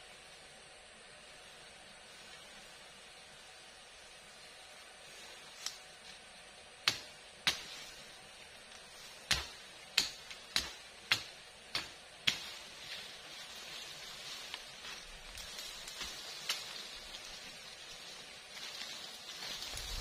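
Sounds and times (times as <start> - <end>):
machete chopping plant stems: 6.8 - 13.1, 14.4 - 17.0.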